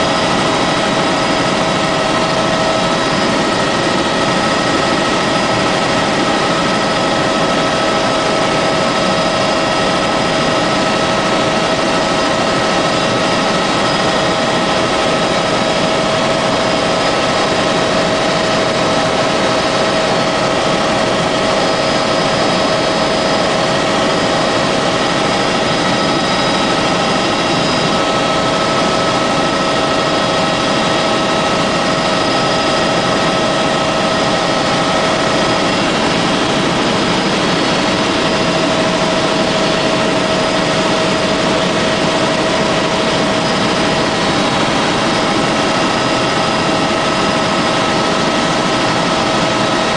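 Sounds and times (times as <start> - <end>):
helicopter engine and rotor noise: 0.0 - 49.9.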